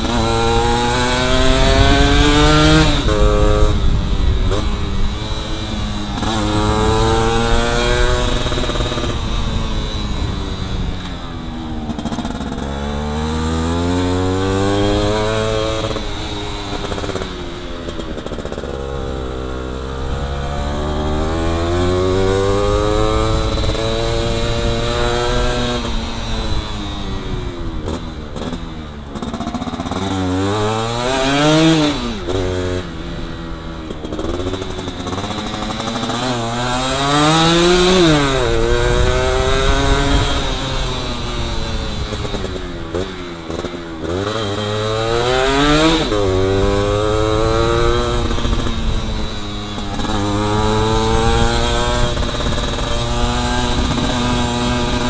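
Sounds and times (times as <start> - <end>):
two-stroke motorbike engine revving: 0.0 - 55.0.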